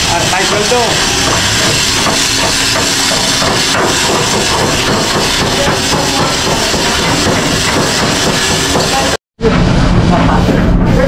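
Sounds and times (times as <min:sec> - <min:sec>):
engine-room machinery noise: 0:00.0 - 0:11.0
metal hammering knocks: 0:00.4 - 0:09.2.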